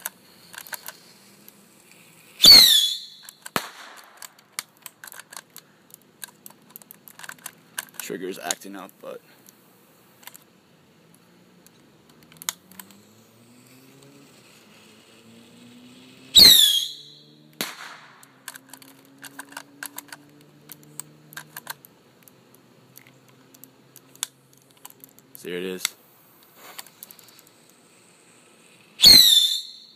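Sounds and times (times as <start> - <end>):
sharp crack: 0.0 - 9.0, 16.3 - 20.2, 28.9 - 29.9
whistle falling in pitch: 2.4 - 3.2, 16.4 - 17.2, 29.0 - 29.9.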